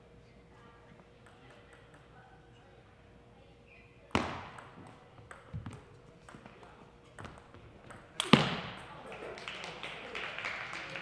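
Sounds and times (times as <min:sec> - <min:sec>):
loud hard ping-pong hit: 0:04.1 - 0:04.8.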